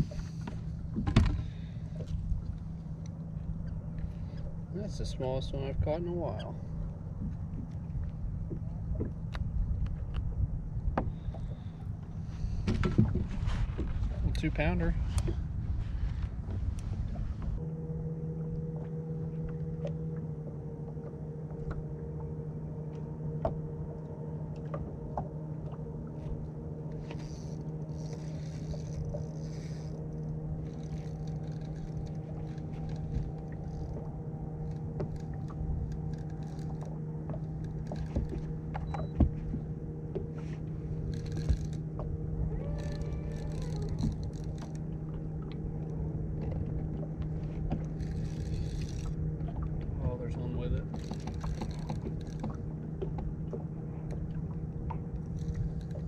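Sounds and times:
electric motor humming: 25.8 - 49.8
light clicks and knocks: 26.9 - 42.2, 42.8 - 49.9, 50.7 - 56.0.

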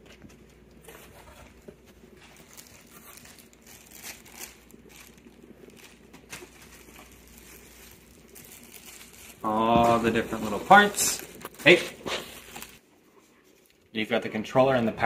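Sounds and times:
plastic bags crinkling: 0.8 - 12.8.

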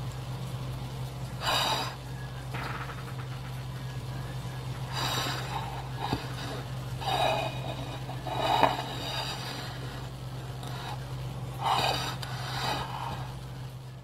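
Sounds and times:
low hum: 0.0 - 14.0
spatula scraping a cake: 5.1 - 13.2.

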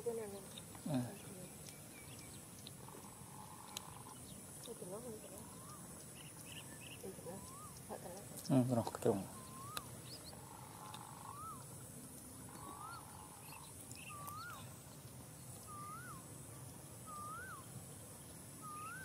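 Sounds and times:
steady high hiss: 0.0 - 19.0
animal whistled call: 7.3 - 7.8, 9.2 - 9.9, 11.2 - 11.7, 12.5 - 13.1, 14.0 - 14.7, 15.6 - 16.2, 17.0 - 17.7, 18.6 - 19.0.

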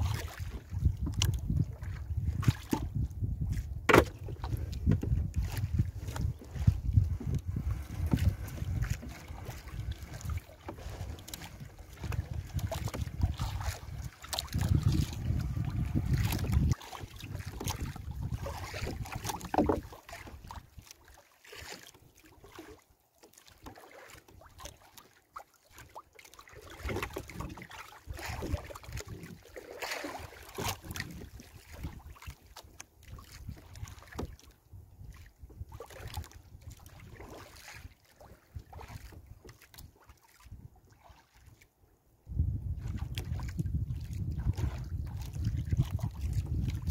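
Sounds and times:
wind rumble on microphone: 0.0 - 20.9, 26.8 - 29.5, 30.1 - 32.4, 33.0 - 41.0, 42.2 - 46.9
light knocks against boat hull: 3.8 - 5.2.

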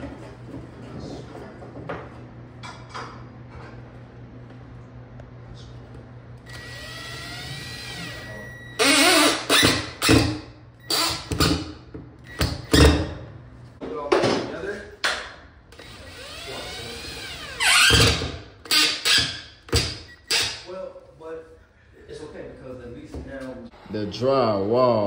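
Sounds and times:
motor whining: 6.4 - 10.2, 15.7 - 19.2
impact driver driving screws: 8.8 - 11.6, 15.8 - 20.6.

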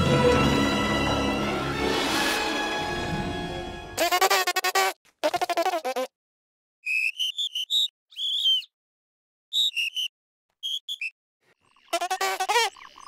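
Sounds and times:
high-pitched cartoon chirping squeaks: 6.8 - 8.7, 9.5 - 13.0.

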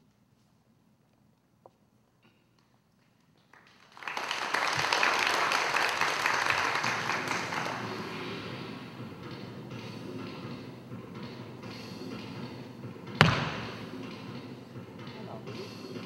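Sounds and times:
audience applauding: 3.4 - 8.6.

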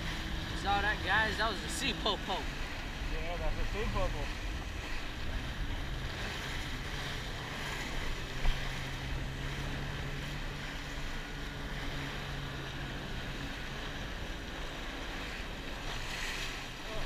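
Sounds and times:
jet ski engine drone: 0.0 - 17.0
water rushing and splashing: 0.0 - 17.0.

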